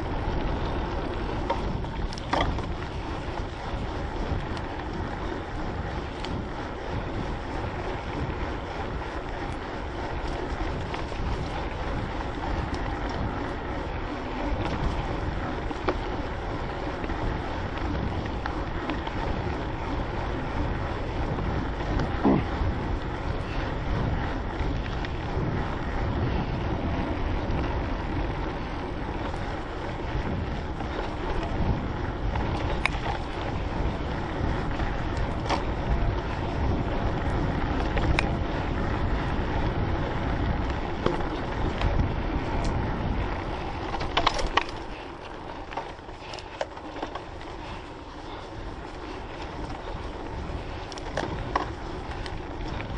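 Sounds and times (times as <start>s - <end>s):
bike tyres rumbling on dirt: 0.0s - 52.9s
wind buffeting microphone: 0.0s - 52.9s.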